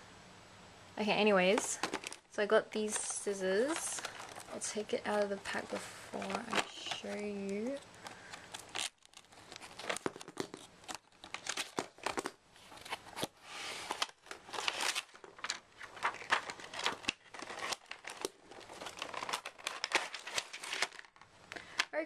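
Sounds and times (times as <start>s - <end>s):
cardboard and plastic crinkling: 1.4s - 22.0s.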